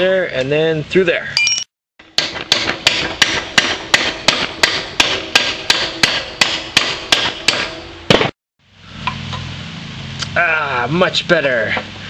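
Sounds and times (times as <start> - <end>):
hammer on metal: 1.4 - 8.3.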